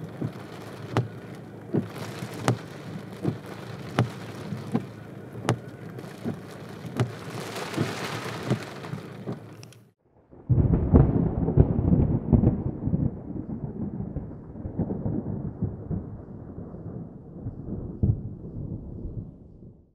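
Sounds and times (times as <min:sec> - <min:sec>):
muffled thunder rumble: 0:00.0 - 0:09.4, 0:10.2 - 0:19.9
hail pellets ticking: 0:00.0 - 0:09.8
sleet and hail hissing: 0:00.0 - 0:09.8
rain: 0:00.0 - 0:18.8.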